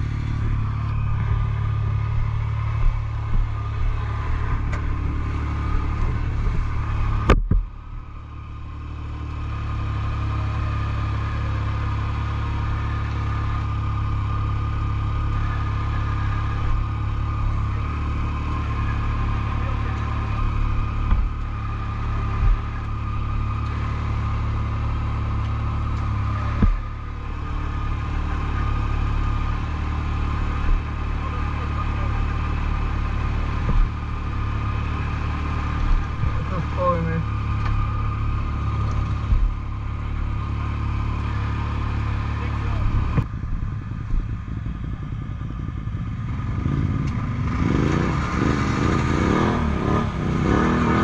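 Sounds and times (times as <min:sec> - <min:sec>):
atv engine idling: 0:00.0 - 0:51.0.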